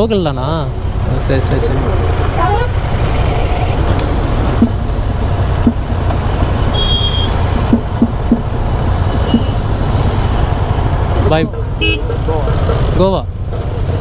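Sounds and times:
motorcycles idling: 0.0 - 14.0
road traffic passing: 0.0 - 14.0
high beep: 6.7 - 7.3.

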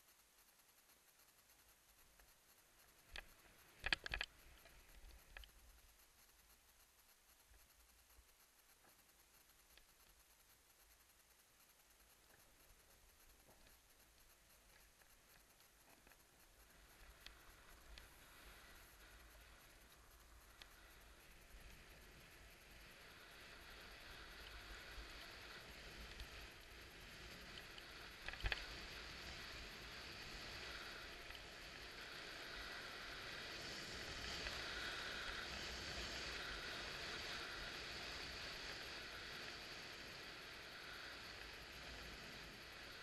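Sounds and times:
skis sliding on packed snow: 20.8 - 43.0.

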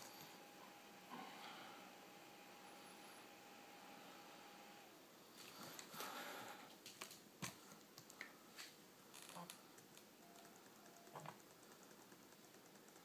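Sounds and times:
faint laptop clicks and taps: 9.7 - 13.0.

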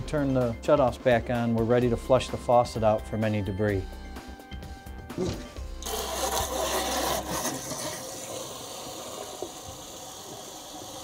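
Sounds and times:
water rushing into a steel sink: 5.8 - 11.0.

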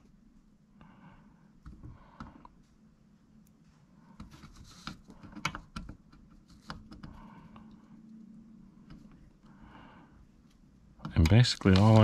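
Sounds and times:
multimeter probes tapping circuit board: 11.0 - 12.0.

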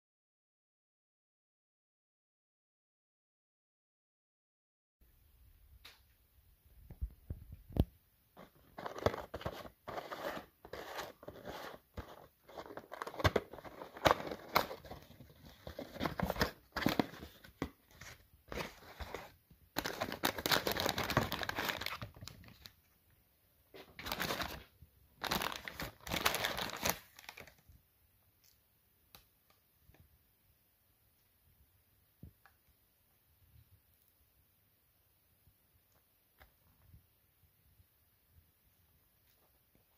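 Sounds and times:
paper wrapper crinkling: 8.4 - 22.8, 23.8 - 27.6.

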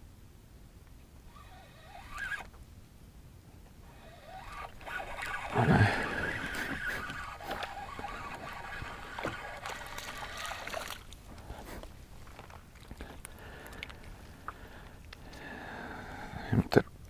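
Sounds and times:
water sloshing and trickling: 4.0 - 15.3.

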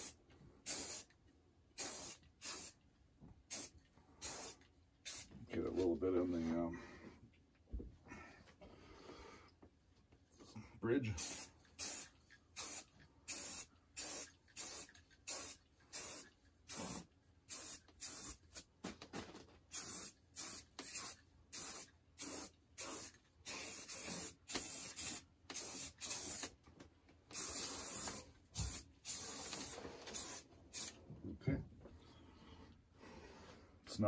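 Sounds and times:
spray can hissing: 0.0 - 1.1, 1.8 - 2.8, 3.5 - 5.3, 11.2 - 18.7, 19.7 - 26.6, 27.3 - 31.0.

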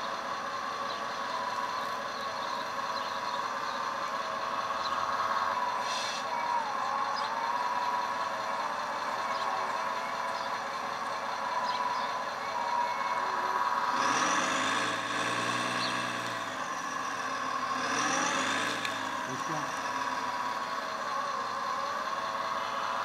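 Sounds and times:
deep machine sound: 6.6 - 23.0
hydraulic pump whining: 13.6 - 22.5.

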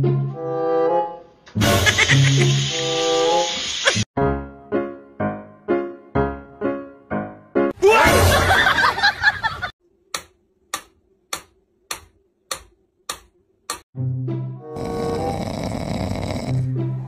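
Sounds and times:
metronome ticking: 10.2 - 13.8.

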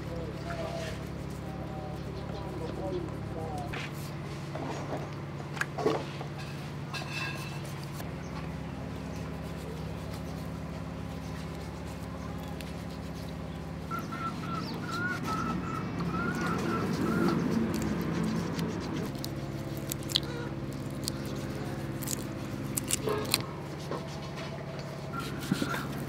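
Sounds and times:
steady low hum: 0.0 - 26.0
bird warbling: 12.0 - 22.2, 25.1 - 26.0.

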